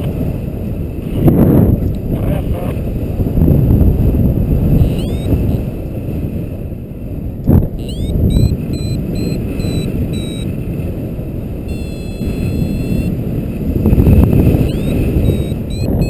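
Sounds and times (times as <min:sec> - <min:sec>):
wind rushing over microphone: 0:00.0 - 0:16.0
variometer electronic beeps: 0:04.8 - 0:05.6, 0:07.8 - 0:10.5, 0:11.7 - 0:13.2, 0:14.6 - 0:16.0.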